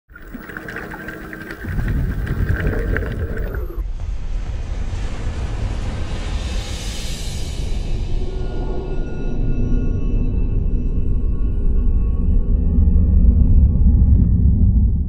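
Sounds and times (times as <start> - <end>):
rushing wind and water: 0.1 - 3.8.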